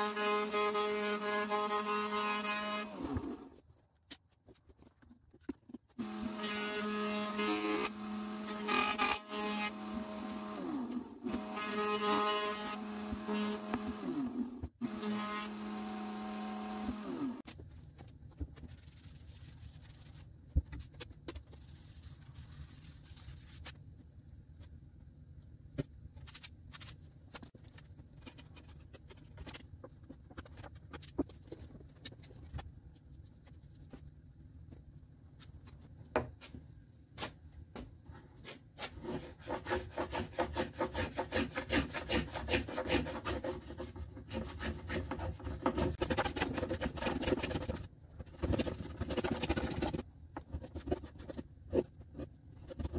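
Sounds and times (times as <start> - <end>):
edge tool shaving wood: 38.8 - 50.0.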